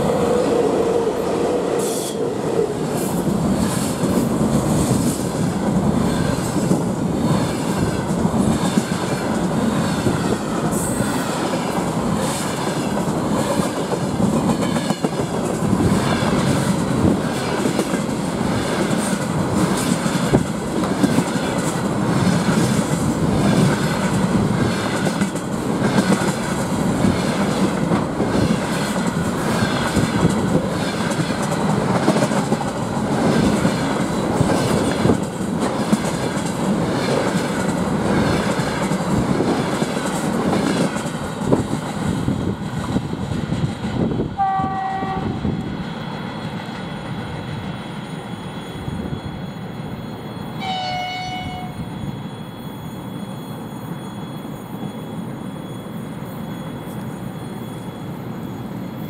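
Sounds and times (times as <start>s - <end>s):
train wheels rumbling on rail: 0.0s - 59.0s
rapid clickety-clack of rail joints: 1.8s - 48.8s.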